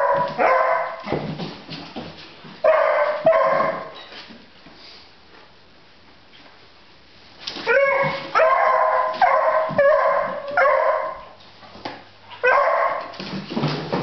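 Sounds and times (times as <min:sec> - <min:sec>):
puppy barking: 0:00.0 - 0:01.0, 0:02.6 - 0:03.9, 0:07.7 - 0:11.4, 0:12.4 - 0:13.1.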